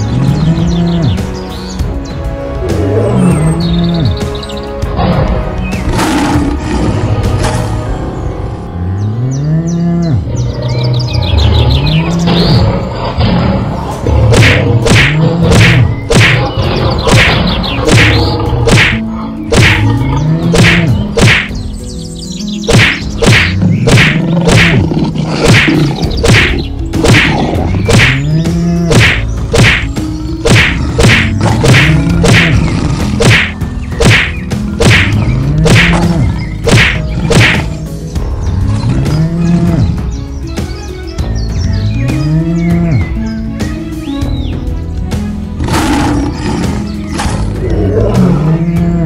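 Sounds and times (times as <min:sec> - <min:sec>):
cow mooing: 0:09.0 - 0:10.3, 0:47.5 - 0:49.0
cartoon whacks: 0:14.3 - 0:19.9, 0:20.5 - 0:21.6, 0:22.7 - 0:24.8, 0:25.4 - 0:28.3, 0:28.9 - 0:32.6, 0:33.2 - 0:37.8.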